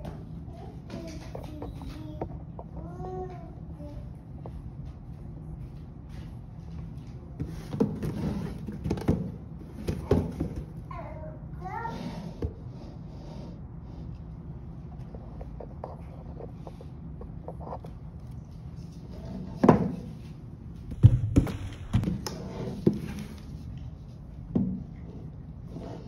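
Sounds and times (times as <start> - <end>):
knocks and thuds of plastic pot: 7.7 - 10.8.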